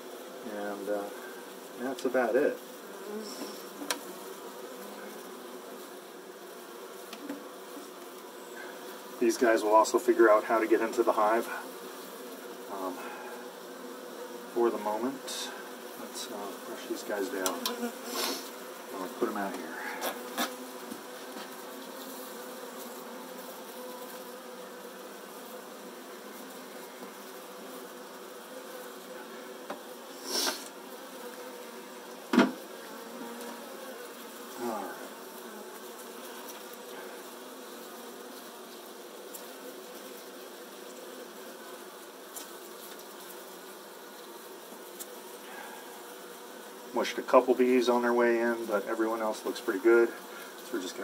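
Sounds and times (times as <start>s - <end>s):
bees buzzing: 0.0s - 51.0s
sharp knock: 32.3s - 32.6s.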